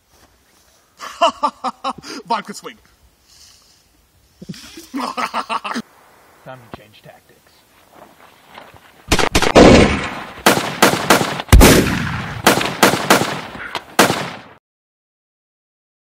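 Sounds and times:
rapid gunshots with echo: 9.1s - 14.6s
heavy boom: 11.5s - 12.5s.

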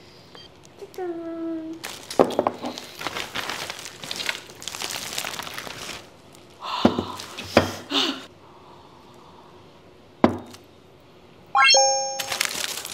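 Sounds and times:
plastic bag rustling and crinkling: 1.8s - 7.4s, 12.2s - 12.9s.

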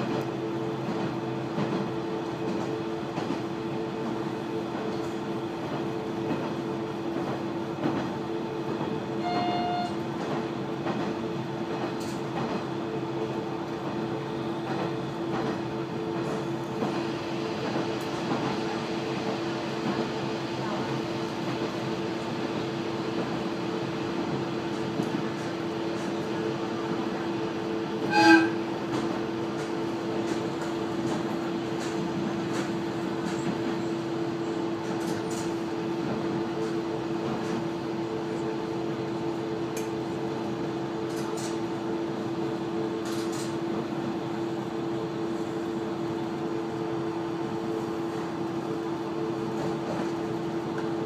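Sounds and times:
diesel railcar droning: 0.0s - 51.0s
rail rolling noise: 0.0s - 51.0s
railcar horn blast: 9.2s - 10.1s, 28.0s - 28.7s.

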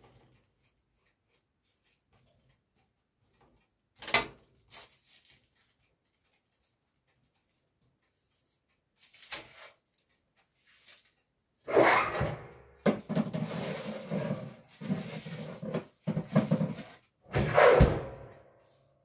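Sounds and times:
tray scraping into oven: 11.7s - 18.3s
baking tray clattering: 12.3s - 17.8s.

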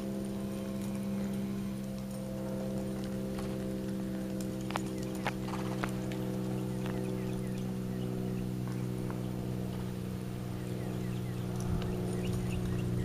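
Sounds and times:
low motor hum: 0.0s - 13.0s
hoof thuds in soft dirt: 0.6s - 7.4s.

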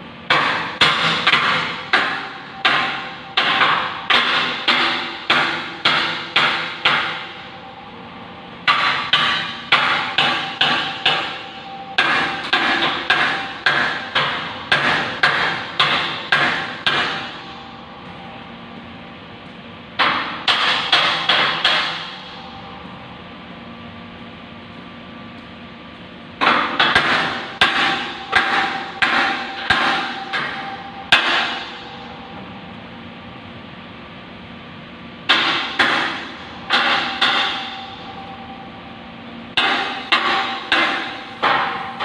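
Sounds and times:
hammer striking steel beam: 0.3s - 7.4s, 8.7s - 17.6s, 20.0s - 22.4s, 26.4s - 32.0s, 35.3s - 38.1s, 39.6s - 42.0s.

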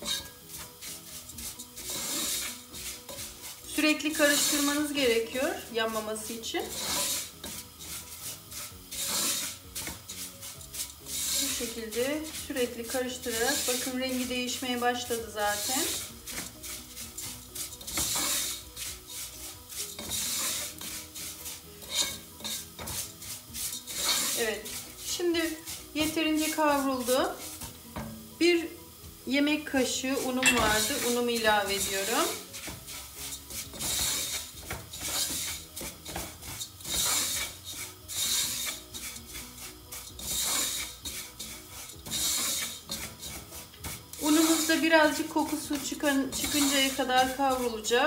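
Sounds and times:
wooden spoon scraping a pot: 0.0s - 28.7s, 29.5s - 48.0s.

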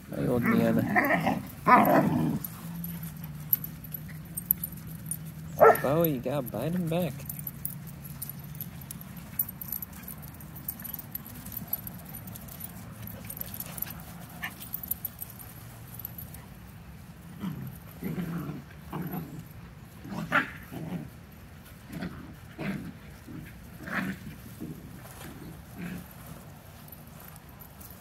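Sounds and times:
puppies growling and yipping: 0.2s - 6.0s, 6.6s - 15.4s, 17.3s - 21.2s.

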